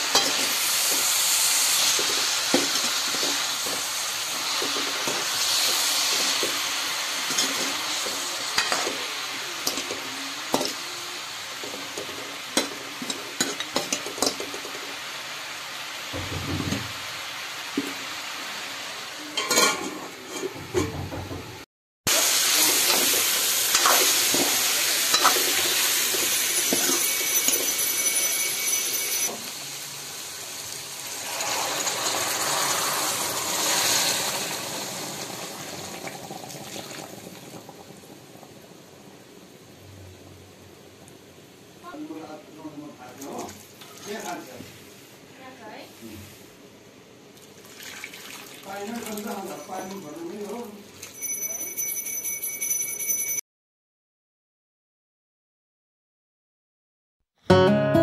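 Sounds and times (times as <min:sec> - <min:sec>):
food sizzling in a wok: 0:00.0 - 0:21.4, 0:22.1 - 0:51.8
spoon scraping and knocking pan: 0:23.7 - 0:29.3.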